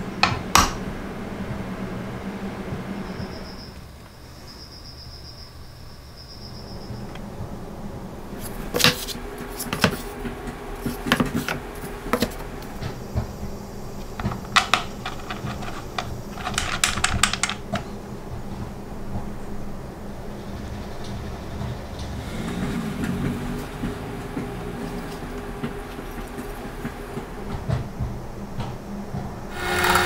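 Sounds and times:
low steady hum: 0.0 - 30.0
planer knocking on wooden blocks: 8.4 - 13.4, 22.3 - 30.0.

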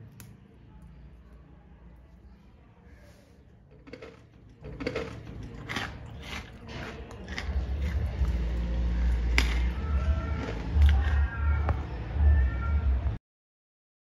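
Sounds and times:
crunchy snack being chewed: 3.6 - 11.4.

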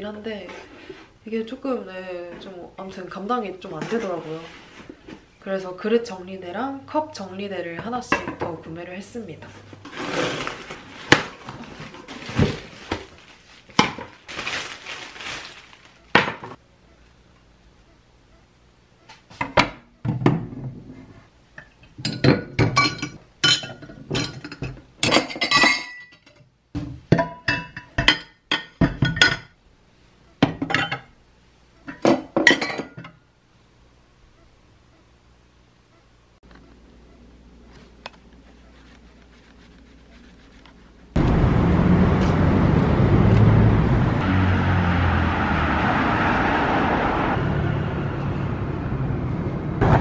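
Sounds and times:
rustling in cardboard box: 9.8 - 16.0
plates and glasses clinking: 22.1 - 26.4, 31.9 - 33.1.

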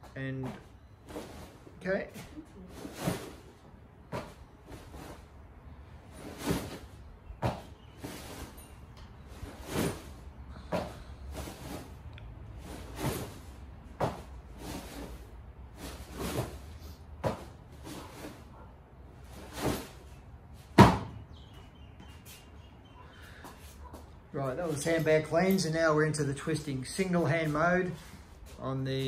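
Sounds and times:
sandbag thudding: 20.7 - 21.1.

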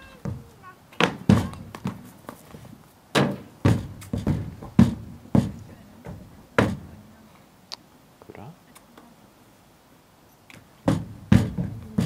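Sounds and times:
horse hooves on trailer ramp: 0.0 - 7.1, 10.5 - 12.0.

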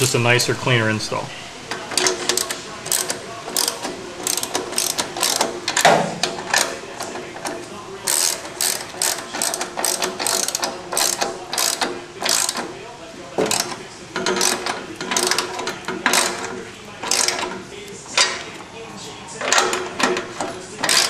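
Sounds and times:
ratchet wrench clicking: 1.8 - 12.8, 13.4 - 17.6, 19.4 - 21.0.

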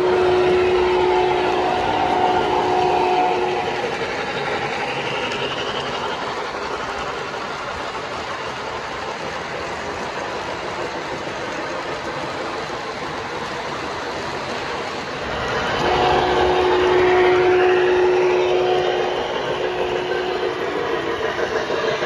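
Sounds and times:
model train whistle: 0.0 - 3.9, 15.3 - 20.7
model train cars clattering: 0.0 - 22.0.

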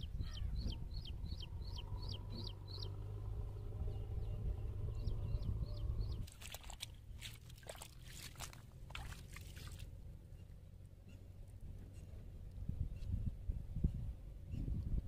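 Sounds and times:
wind rumble on microphone: 0.0 - 7.3, 11.2 - 15.0
wet splats in mud: 6.2 - 9.9.

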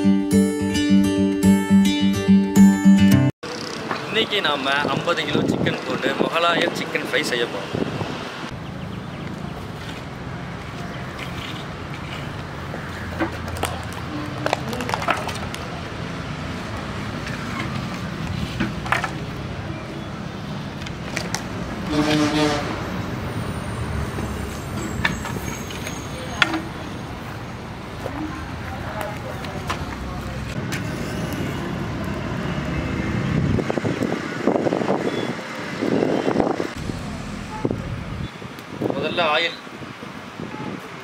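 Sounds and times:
low background rumble: 36.8 - 38.4.

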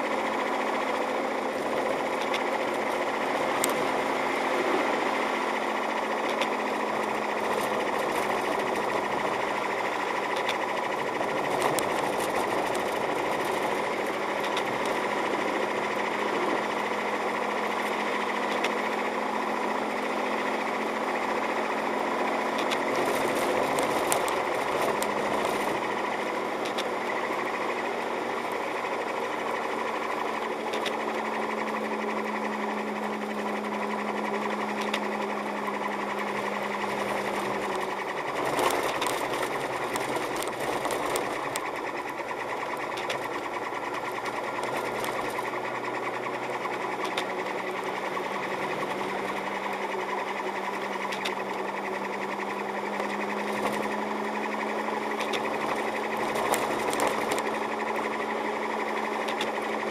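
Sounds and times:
car engine hum: 0.0 - 59.9
fast mechanical rattle: 0.0 - 59.9
road noise: 0.0 - 59.9
small ticks: 1.5 - 3.9, 6.2 - 15.1, 22.4 - 27.7, 28.3 - 32.4, 33.2 - 59.9.

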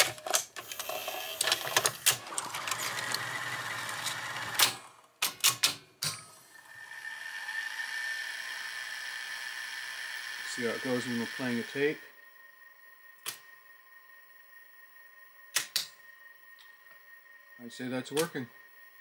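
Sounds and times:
tape mechanism clicks and clunks: 0.0 - 6.3
machine high whine: 0.7 - 5.0, 6.4 - 19.0.

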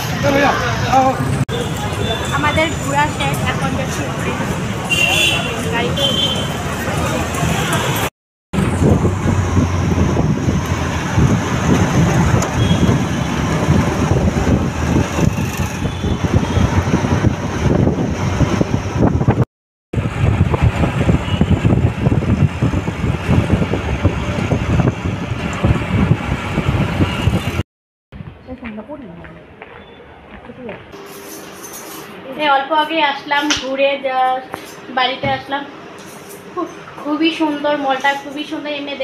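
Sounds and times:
vehicle engine and road noise: 0.0 - 27.6.

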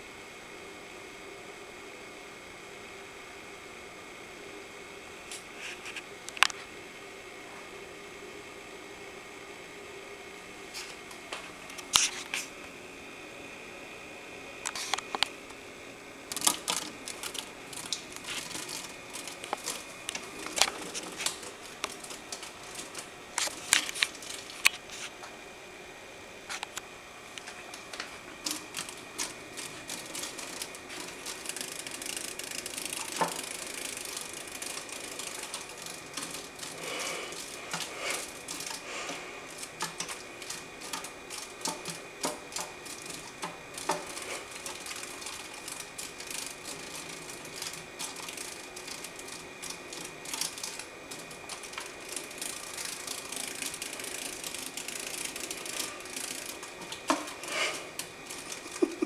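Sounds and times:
moth wings tapping on glass: 27.4 - 53.2.

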